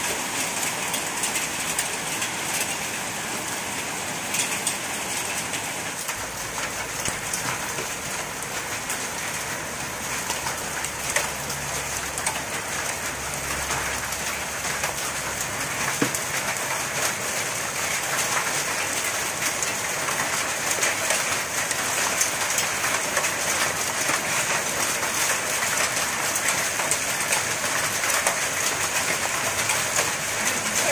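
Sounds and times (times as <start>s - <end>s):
hail ticking: 0.0s - 30.9s
heavy rain hissing: 28.7s - 30.9s.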